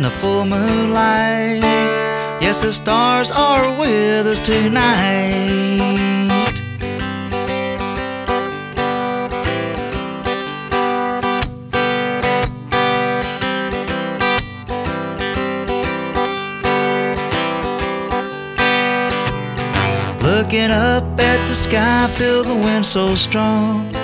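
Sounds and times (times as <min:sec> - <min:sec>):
strummed acoustic guitar: 0:00.0 - 0:24.0.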